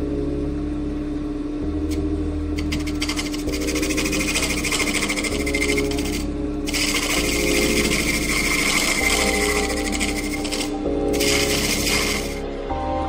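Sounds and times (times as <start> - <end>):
background music with bass line: 0.0 - 13.0
hollowing tool scraping wood on lathe: 2.6 - 12.4.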